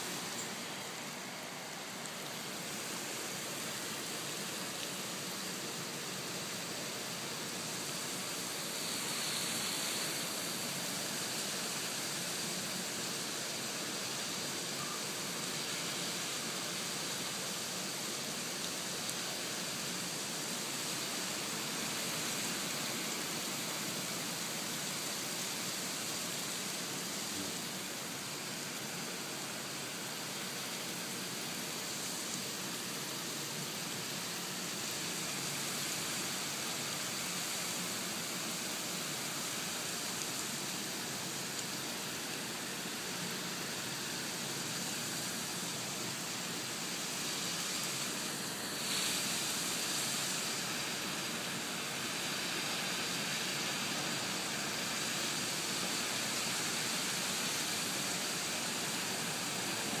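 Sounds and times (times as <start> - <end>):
rain falling: 0.0 - 60.0.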